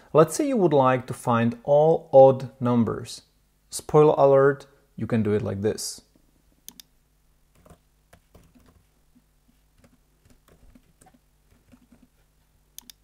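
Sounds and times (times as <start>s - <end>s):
typing on computer keyboard: 7.6s - 8.8s, 9.8s - 12.1s.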